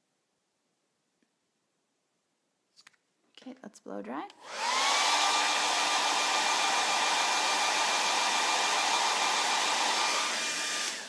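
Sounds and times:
hair dryer running: 0:04.4 - 0:11.0.

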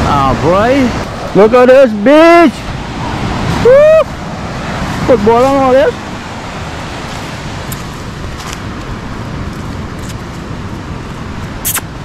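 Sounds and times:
surf breaking on beach: 0:00.0 - 0:12.0
wind noise: 0:00.0 - 0:12.0
sharp click: 0:11.6 - 0:11.9.

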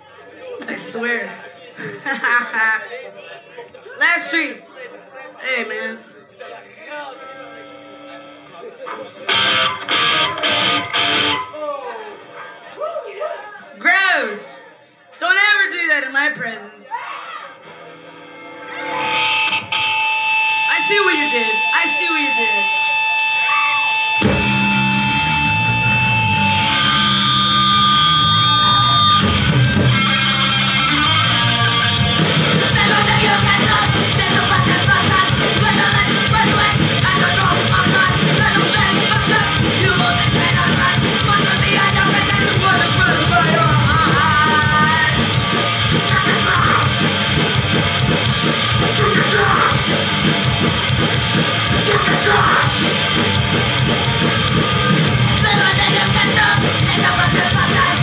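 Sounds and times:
punk band playing live: 0:09.3 - 0:11.6, 0:17.6 - 0:58.0
person yelling vocals: 0:49.0 - 0:49.8, 0:51.8 - 0:52.8.

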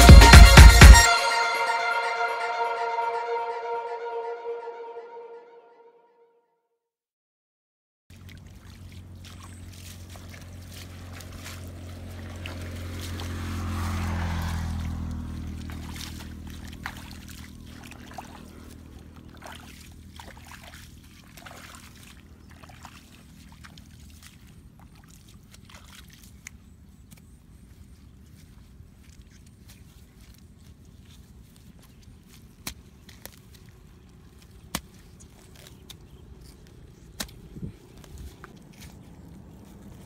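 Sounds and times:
low engine drone: 0:00.0 - 0:05.7, 0:08.1 - 0:25.6
footsteps wading through water: 0:08.1 - 0:40.0.

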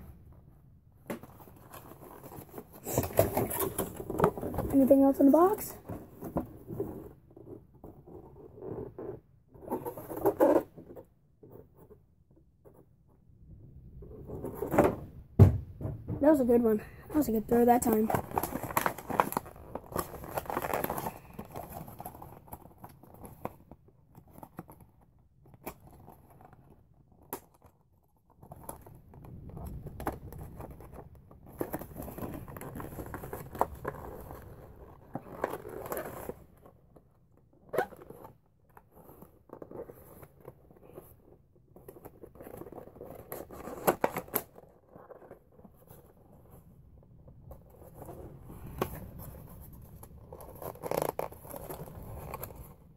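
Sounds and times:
cardboard rustling and tearing: 0:01.2 - 0:07.2, 0:17.2 - 0:29.0, 0:29.6 - 0:36.8, 0:37.7 - 0:46.6, 0:47.5 - 0:52.8.

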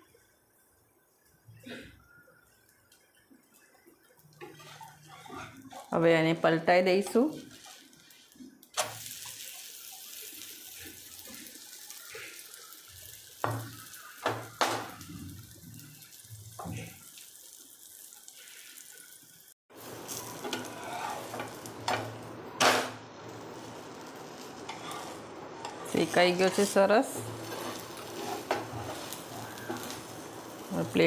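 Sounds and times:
pancake sizzling on a griddle: 0:00.0 - 0:31.0
metal spatula scraping griddle: 0:04.4 - 0:06.0, 0:07.0 - 0:09.6, 0:20.1 - 0:22.1, 0:23.6 - 0:30.6.

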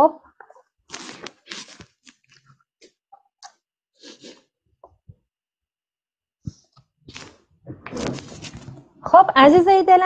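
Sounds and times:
breaths and mouth noises: 0:00.2 - 0:05.2.

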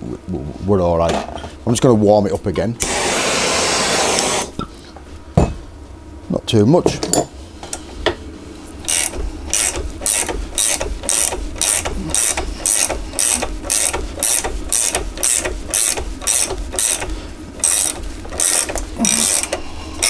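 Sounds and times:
ratchet wrench clicking: 0:08.9 - 0:19.6.

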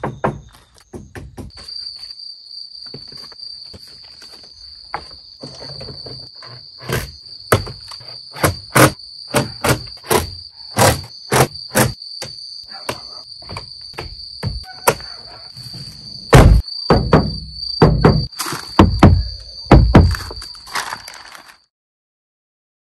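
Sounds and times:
insects trilling: 0:00.0 - 0:21.7
sharp knocks on door panel: 0:12.9 - 0:15.0, 0:16.3 - 0:20.3.

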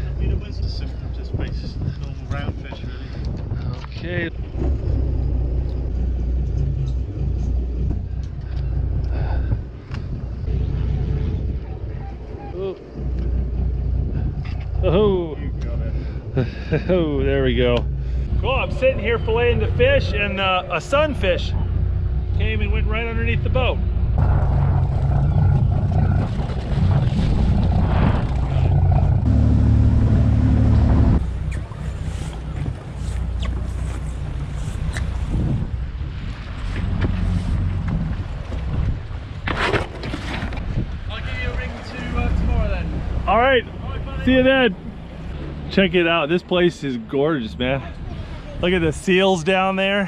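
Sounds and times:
boat engine humming: 0:00.0 - 0:39.5, 0:40.7 - 0:50.0
wind noise: 0:00.0 - 0:45.9
low steady rumble: 0:00.0 - 0:50.0
water noise: 0:00.0 - 0:50.0.

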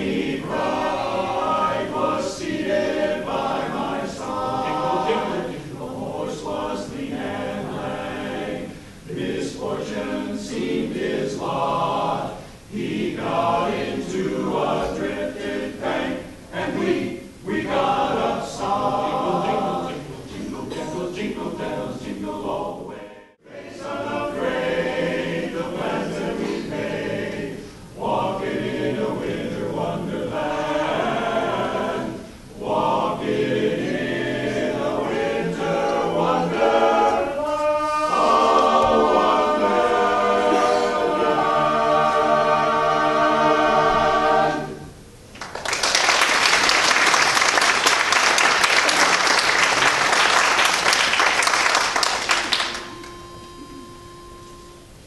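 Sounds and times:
men's chorus singing a cappella: 0:00.0 - 0:45.0
audience applause: 0:45.4 - 0:52.9.

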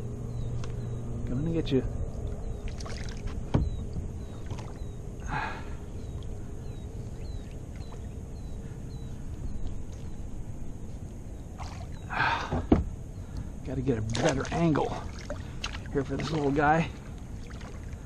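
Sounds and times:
steady low rumble: 0:00.0 - 0:18.0
paddle strokes splashing water: 0:02.6 - 0:03.4, 0:04.3 - 0:04.9, 0:14.1 - 0:18.0.

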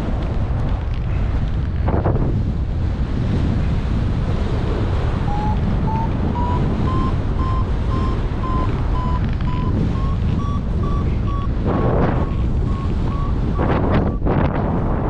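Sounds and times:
wind rushing over microphone: 0:00.0 - 0:15.0
variometer beeping: 0:05.3 - 0:14.3.

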